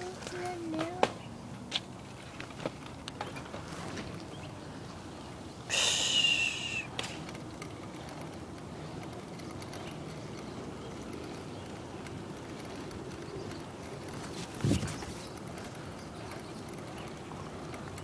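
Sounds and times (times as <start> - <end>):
bicycle tyres rumbling: 0.0 - 18.0
wind on microphone: 14.0 - 15.4.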